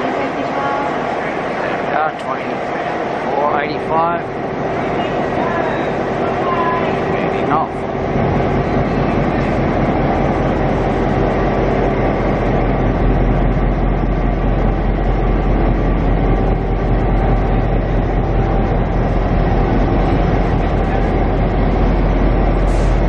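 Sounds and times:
diesel locomotive engines humming: 0.0s - 23.0s.

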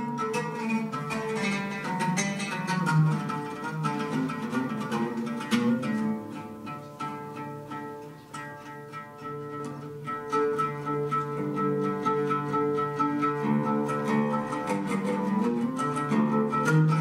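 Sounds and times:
oud plucked notes: 0.0s - 17.0s.

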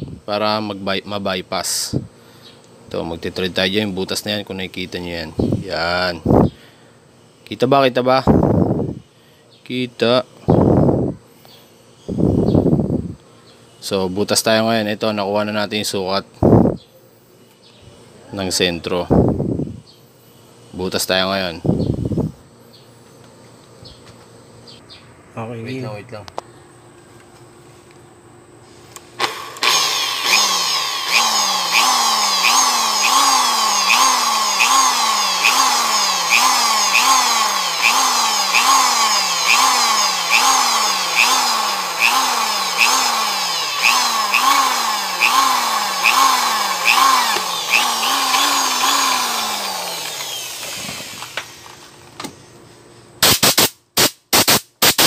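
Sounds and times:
cordless drill boring into metal: 29.2s - 51.7s.

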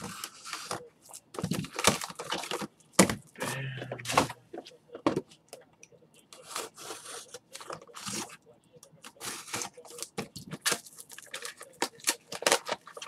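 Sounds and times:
card wrappers tearing: 6.4s - 8.4s, 9.1s - 13.0s
cards scraping: 6.4s - 8.4s.

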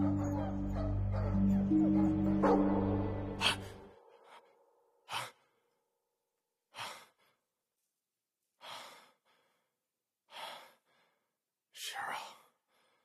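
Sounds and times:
music cue: 0.0s - 3.9s.

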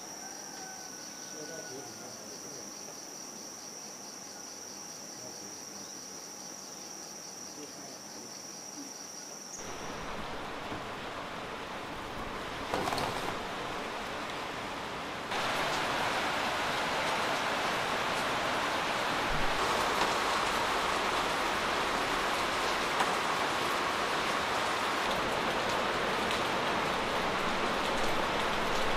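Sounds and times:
insects trilling: 0.0s - 14.2s
rain falling: 9.6s - 28.9s.

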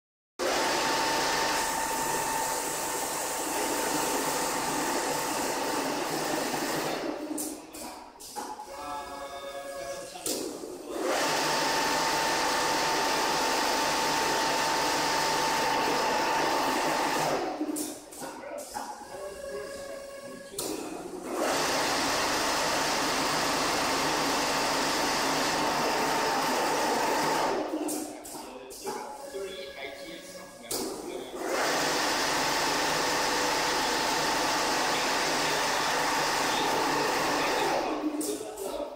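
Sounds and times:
sewing machine whirring: 0.4s - 8.0s, 10.9s - 18.0s, 21.1s - 28.0s, 31.2s - 38.4s.

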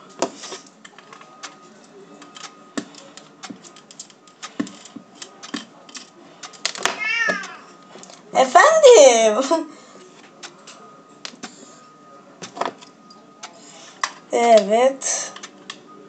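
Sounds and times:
small clicks of gun parts: 2.2s - 8.2s.

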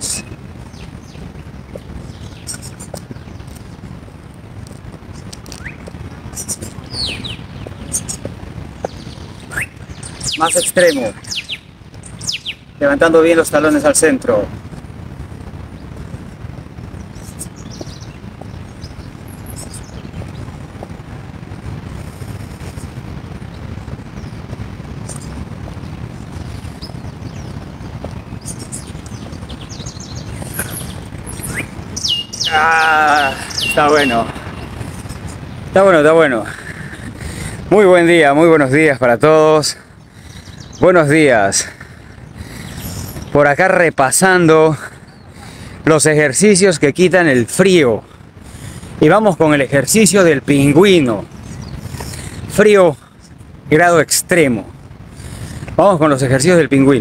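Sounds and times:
bird chirps: 0.0s - 3.8s, 5.2s - 13.6s, 17.0s - 20.5s, 26.6s - 36.9s, 40.0s - 41.1s, 42.1s - 43.5s, 51.1s - 52.6s
low outdoor rumble: 0.0s - 57.0s.

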